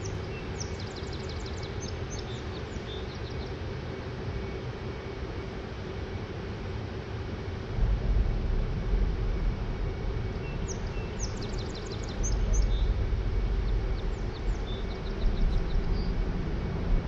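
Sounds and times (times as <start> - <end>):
low rumbling noise: 6.3 - 17.0
bird chirping: 10.4 - 16.2.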